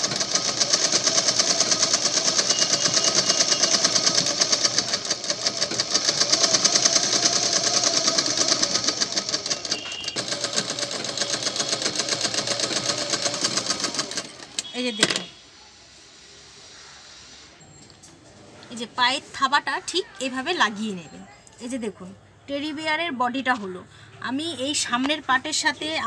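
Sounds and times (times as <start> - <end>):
sewing machine stitching: 0.0 - 15.3.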